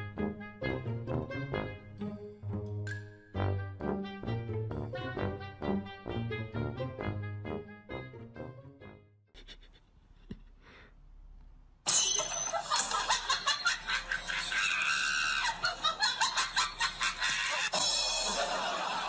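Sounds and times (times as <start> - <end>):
person stifled laughter: 9.3 - 10.6, 12.5 - 17.8.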